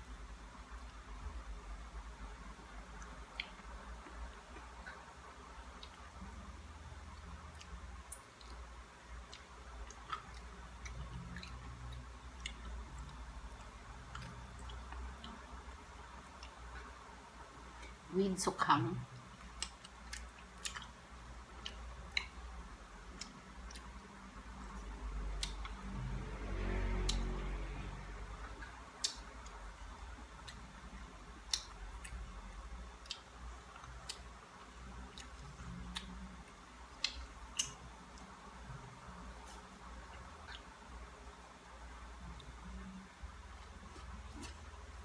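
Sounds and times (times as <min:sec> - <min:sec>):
person chewing crisp dried fish: 0:07.1 - 0:15.5, 0:19.3 - 0:26.0, 0:30.3 - 0:37.8.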